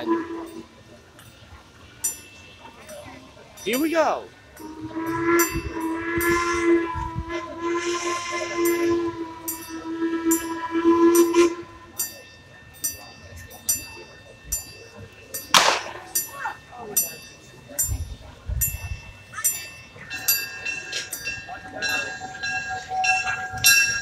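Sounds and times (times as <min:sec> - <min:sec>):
steam locomotive whistle: 0:00.0 - 0:00.9, 0:04.6 - 0:12.5, 0:17.9 - 0:24.0
locomotive exhaust chuffing: 0:00.0 - 0:24.0.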